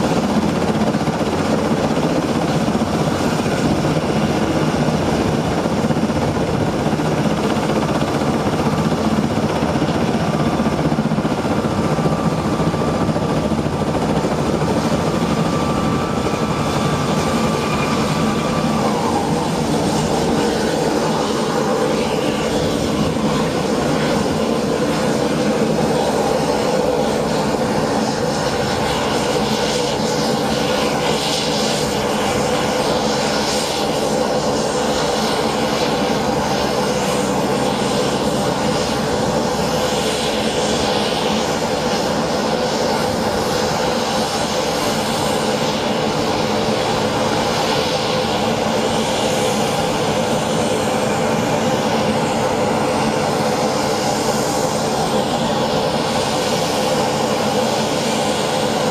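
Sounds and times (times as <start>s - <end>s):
aircraft turbine engines droning: 0.0s - 58.9s.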